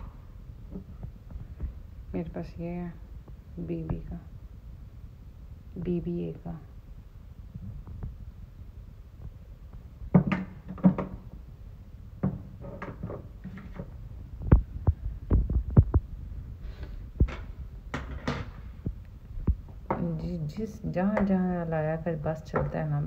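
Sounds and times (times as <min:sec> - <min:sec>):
steady low hum: 0:00.0 - 0:23.0
bottles knocking on wooden table: 0:10.1 - 0:11.2, 0:12.2 - 0:13.8.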